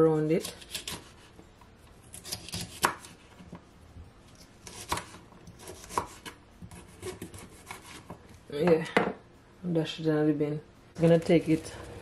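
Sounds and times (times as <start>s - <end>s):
knife cutting cabbage on board: 0.3s - 1.4s, 2.1s - 3.3s, 4.6s - 8.2s.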